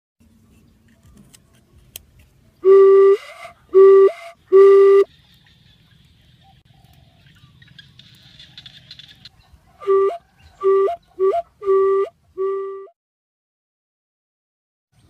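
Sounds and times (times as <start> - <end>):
bamboo flute notes: 2.6 - 5.1, 9.8 - 13.0.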